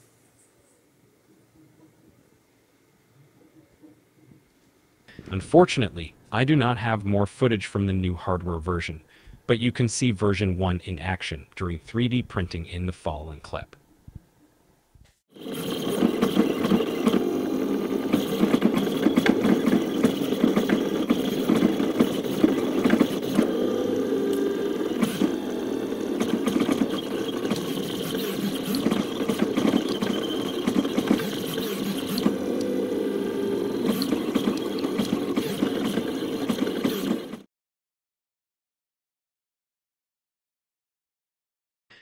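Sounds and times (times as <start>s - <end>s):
stepper motors whirring: 15.3s - 37.5s
small mechanical clicks: 24.2s - 37.4s.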